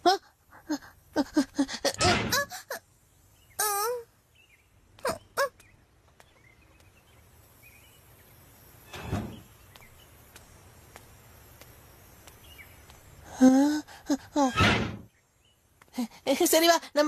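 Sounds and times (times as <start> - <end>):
faint birdsong: 0.0 - 17.0
gate knock: 14.5 - 15.1.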